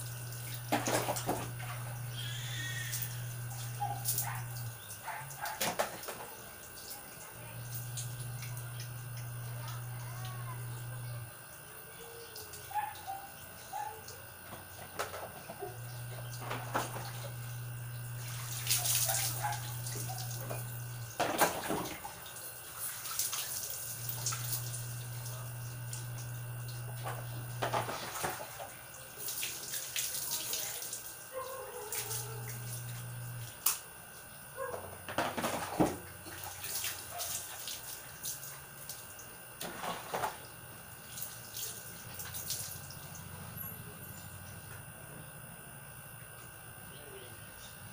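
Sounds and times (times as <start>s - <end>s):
water sloshing in plastic basins: 0.0s - 2.2s, 14.5s - 33.5s, 34.7s - 43.4s.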